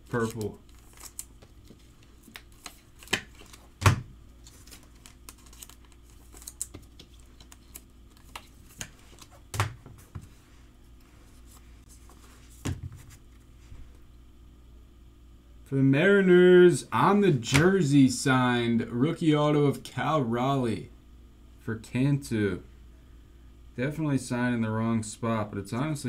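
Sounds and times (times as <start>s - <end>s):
faint steady hum: 0.0s - 26.0s
cards clicking and tapping: 0.1s - 10.3s.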